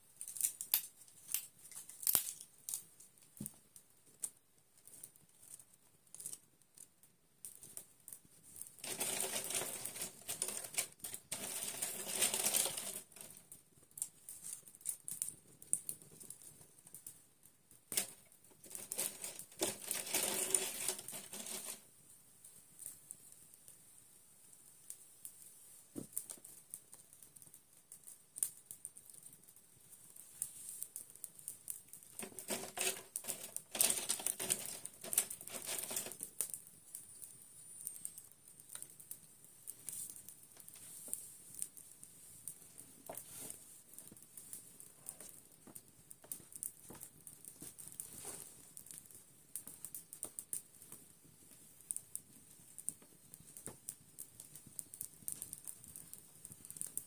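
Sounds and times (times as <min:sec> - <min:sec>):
rustling: 0:07.6 - 0:17.1, 0:17.9 - 0:21.9, 0:29.0 - 0:57.0.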